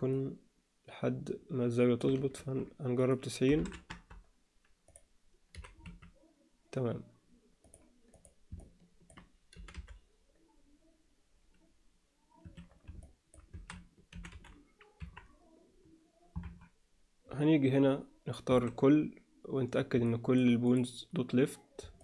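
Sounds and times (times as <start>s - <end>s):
computer keyboard keystrokes: 4.9s - 6.1s, 7.6s - 10.0s, 12.4s - 15.3s.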